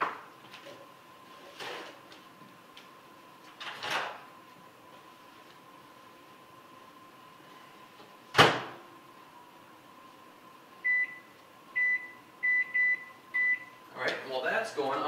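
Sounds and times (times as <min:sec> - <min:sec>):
microwave door shutting: 0:08.3 - 0:08.8
microwave keypad beeps: 0:10.8 - 0:13.8.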